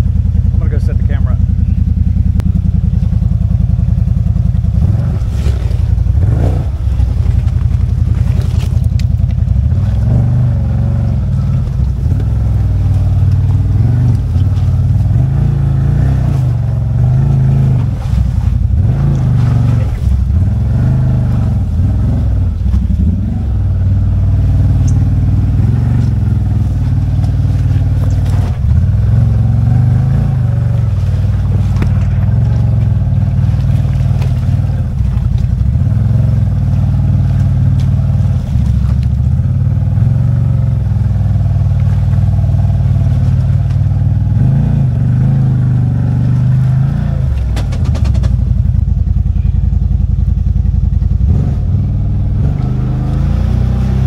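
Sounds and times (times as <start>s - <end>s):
engine running under load: 0.0s - 54.0s
vehicle knocking over rough ground: 24.6s - 40.5s, 46.4s - 54.0s.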